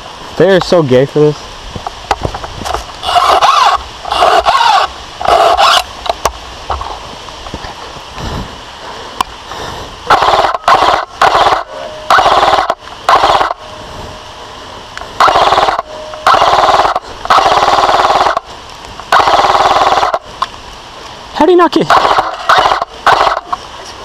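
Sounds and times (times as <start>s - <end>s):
airsoft rifle bursts: 15.2s - 18.4s, 21.9s - 23.6s.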